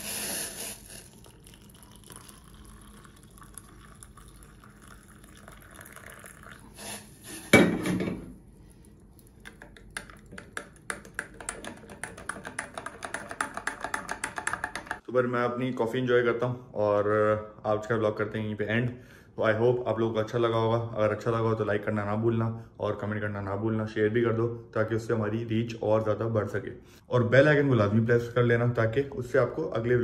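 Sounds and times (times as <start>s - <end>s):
hot water pouring into mug: 0.0s - 7.6s.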